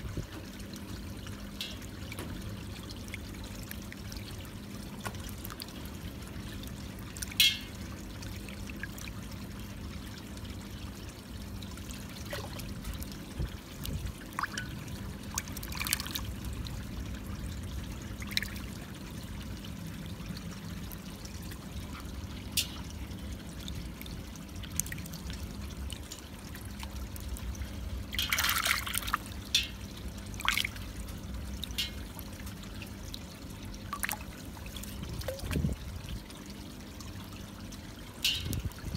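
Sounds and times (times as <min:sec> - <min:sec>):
steady low hum: 0:00.0 - 0:38.9
water sloshing and splashing in basin: 0:00.0 - 0:38.9.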